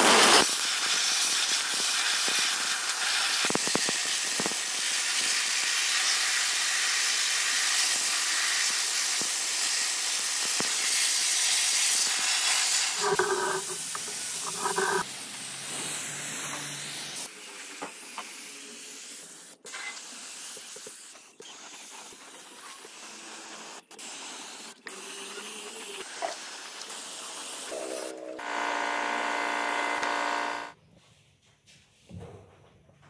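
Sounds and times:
loud steady hum: 0:27.7 - 0:30.8.

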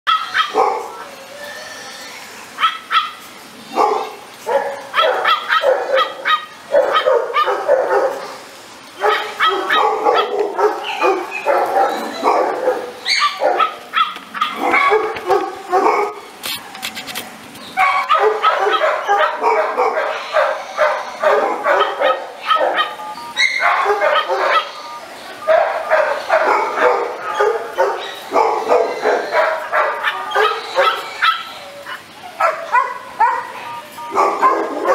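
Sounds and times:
dog barking: 0:00.1 - 0:01.0, 0:02.6 - 0:08.3, 0:09.0 - 0:16.2, 0:17.8 - 0:24.8, 0:25.4 - 0:31.6, 0:32.4 - 0:34.9.

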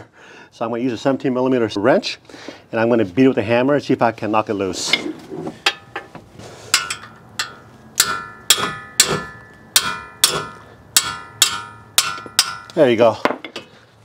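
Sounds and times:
hammer striking metal wrench: 0:06.7 - 0:12.8
wrench ringing: 0:06.7 - 0:12.8.

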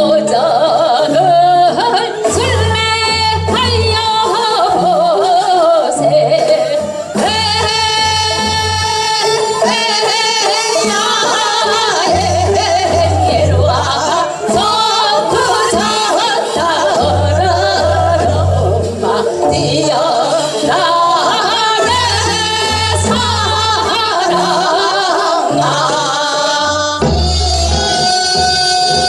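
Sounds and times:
instrumental accompaniment: 0:00.0 - 0:29.0
women singing with vibrato: 0:00.0 - 0:29.0.

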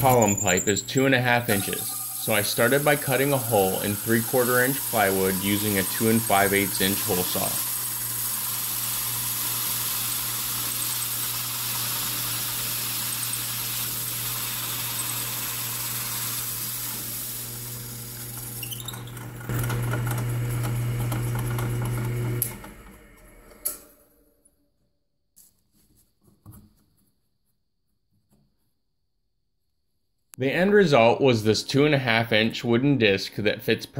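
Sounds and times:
hole saw cutting wood: 0:00.0 - 0:17.3
drill press motor hum: 0:00.0 - 0:24.1.

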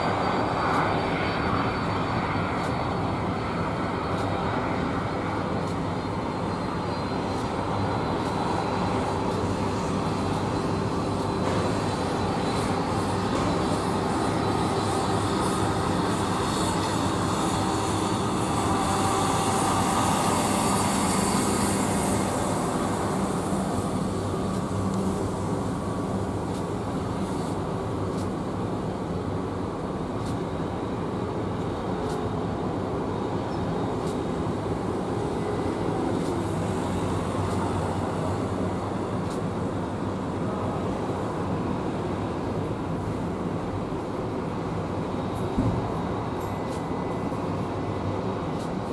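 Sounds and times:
jet engines rumbling: 0:00.0 - 0:48.9.

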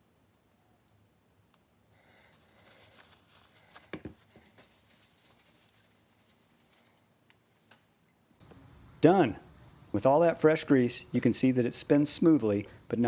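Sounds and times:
soft handling rustle: 0:02.1 - 0:08.0.

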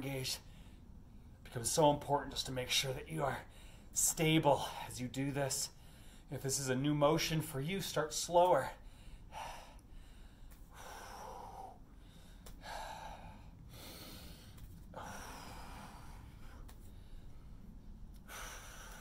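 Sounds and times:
man breathing hard: 0:03.4 - 0:04.0, 0:05.8 - 0:06.3, 0:08.8 - 0:19.0.

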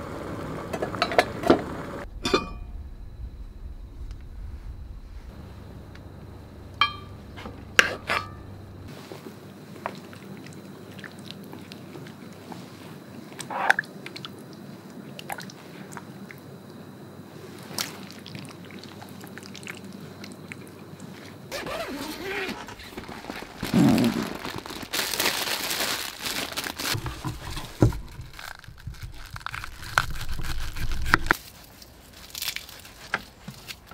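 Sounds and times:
metal spoon clinking on pot: 0:06.8 - 0:07.1.

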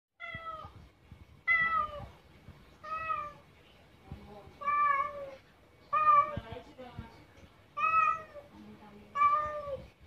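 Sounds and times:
cat meowing: 0:00.2 - 0:00.8, 0:01.5 - 0:02.1, 0:02.8 - 0:03.4, 0:07.8 - 0:08.5, 0:09.1 - 0:09.9.

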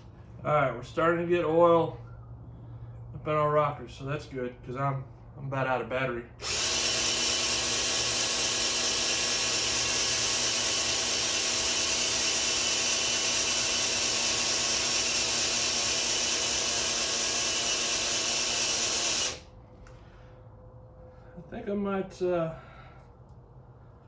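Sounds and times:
cordless drill running: 0:06.4 - 0:19.5.

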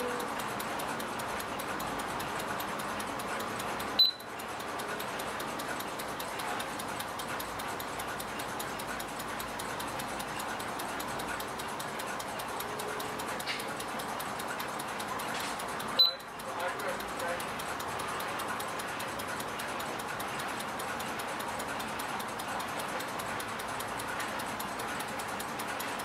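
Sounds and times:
clock ticking: 0:00.0 - 0:26.0
short high beep: 0:04.0 - 0:04.2.

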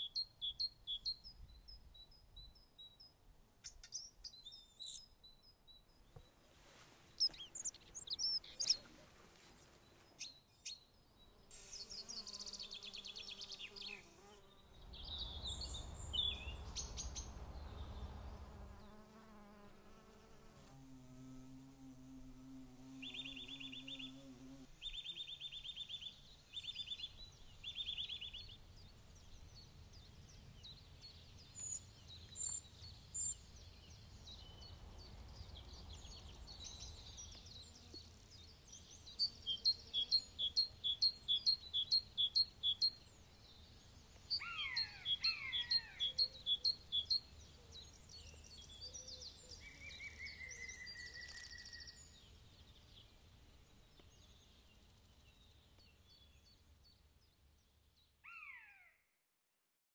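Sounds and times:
woodland birds singing: 0:00.0 - 0:19.6, 0:22.8 - 0:58.9
faint low rumble: 0:14.7 - 0:18.9.

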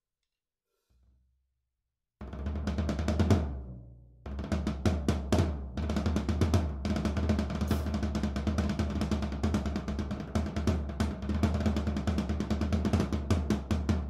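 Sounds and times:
floor tom drum strokes: 0:04.3 - 0:11.0
low drum ring: 0:07.6 - 0:08.0.

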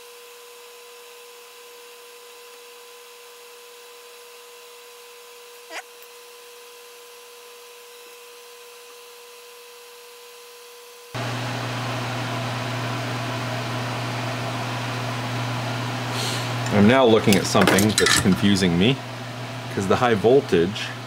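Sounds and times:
electric fan whooshing: 0:11.2 - 0:21.0.

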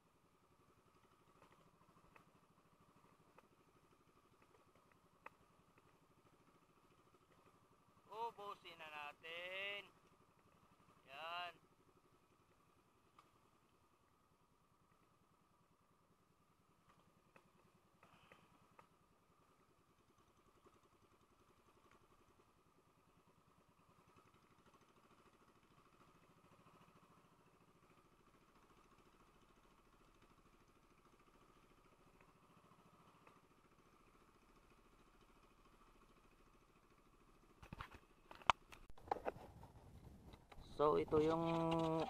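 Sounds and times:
faint engine hum: 0:00.0 - 0:42.0
small clicks: 0:37.6 - 0:39.5.

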